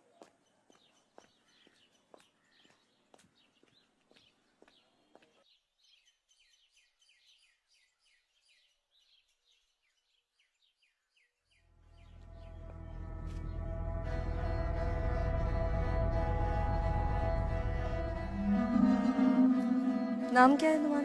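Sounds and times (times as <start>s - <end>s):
bird chirping: 0.0s - 13.6s
footsteps on dirt path: 0.1s - 5.4s
low ominous music drone: 11.8s - 21.0s.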